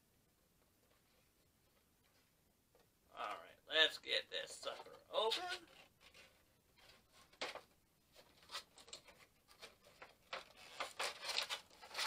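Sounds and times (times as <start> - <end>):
cardboard box packaging rustling: 5.2 - 12.0.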